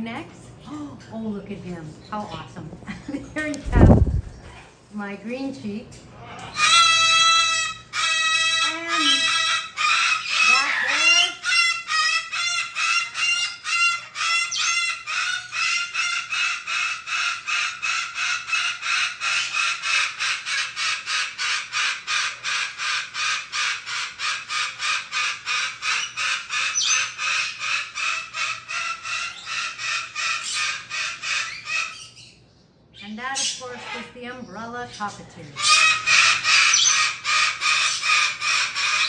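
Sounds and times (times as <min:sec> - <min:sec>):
parrot calling harshly: 0:06.2 - 0:32.4, 0:33.0 - 0:34.2, 0:35.6 - 0:39.0.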